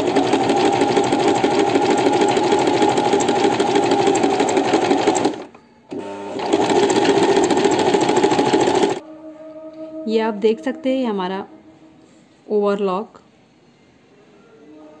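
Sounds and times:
sewing machine stitching: 0.0 - 9.0.

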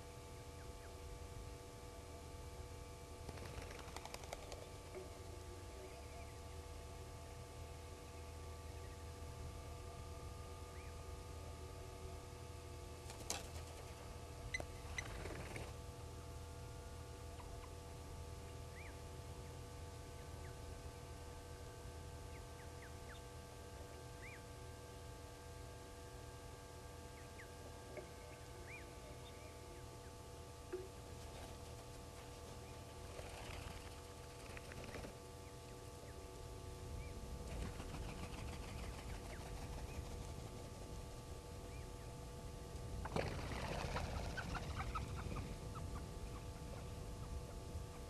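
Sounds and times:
low hum and rumble: 0.0 - 48.0
bird chirps: 18.7 - 19.0.

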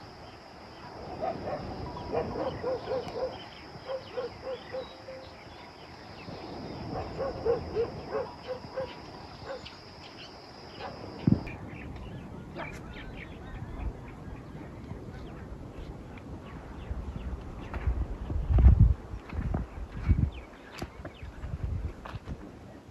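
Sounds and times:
dog barking: 1.1 - 5.2, 6.9 - 9.7, 10.8 - 11.1.

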